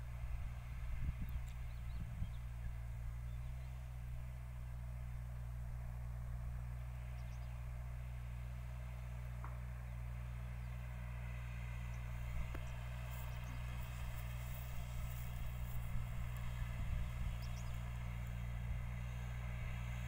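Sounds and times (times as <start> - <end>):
distant tractor diesel engine hum: 0.0 - 20.0.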